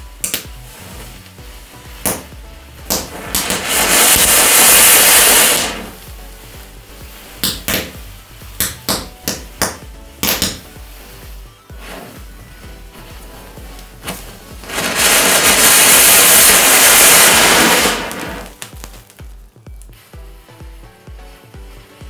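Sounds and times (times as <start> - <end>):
firecracker pops and crackles: 0.0 - 11.0, 13.7 - 20.3
firecracker fountain hissing: 0.0 - 22.0.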